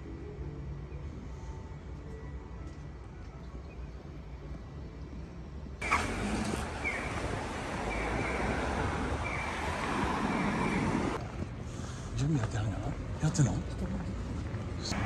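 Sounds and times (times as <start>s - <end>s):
car traffic noise: 5.8s - 15.0s.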